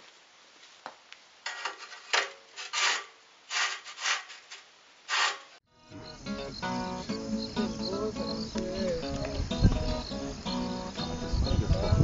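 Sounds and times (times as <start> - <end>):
brick scraping across metal: 1.4 - 5.6.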